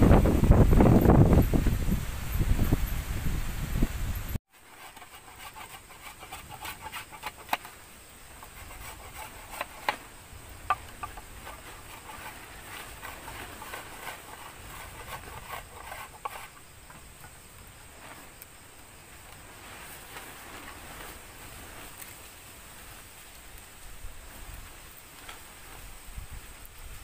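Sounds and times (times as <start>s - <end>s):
knife scraping bamboo: 4.5s - 17.0s.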